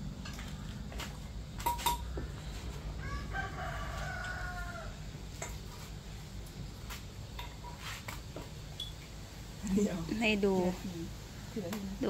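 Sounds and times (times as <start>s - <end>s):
steady low hum: 0.0s - 12.0s
rooster crowing: 2.9s - 5.2s.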